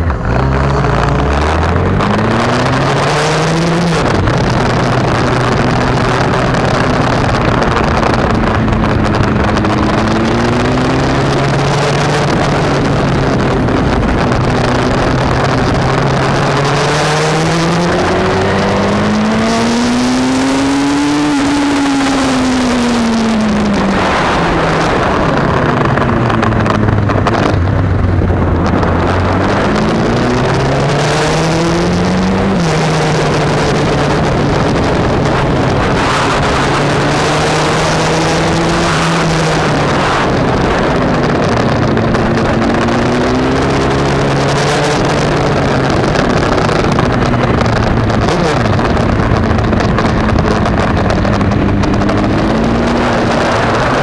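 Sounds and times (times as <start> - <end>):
motorcycle engine accelerating: 0.0 - 54.0
wind rush on microphone: 0.0 - 54.0.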